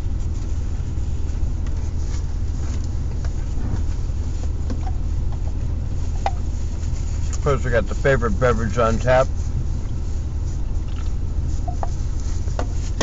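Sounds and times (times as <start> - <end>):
car engine idling: 0.0 - 13.0
chewing clicks: 10.8 - 11.2.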